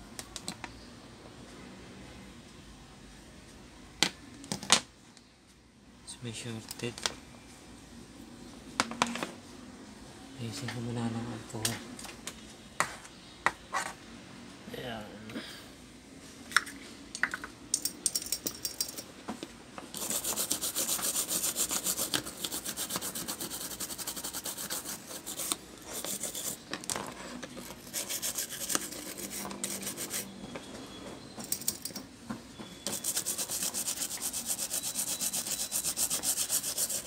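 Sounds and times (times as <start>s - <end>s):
toothbrush scrubbing circuit board: 20.0s - 26.6s, 27.8s - 30.3s, 32.9s - 37.0s.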